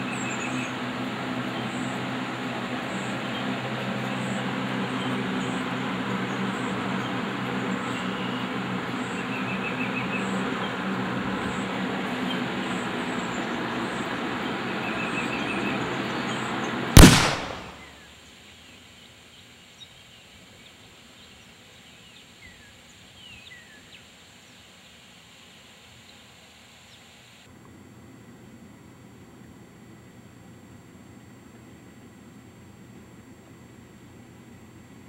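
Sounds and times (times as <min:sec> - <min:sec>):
steady background noise: 0:00.0 - 0:35.0
loud shotgun blast: 0:17.0 - 0:17.9.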